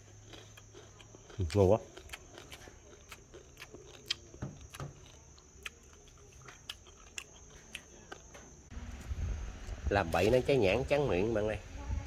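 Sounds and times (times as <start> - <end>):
person chewing crunchy food: 0.0 - 8.6.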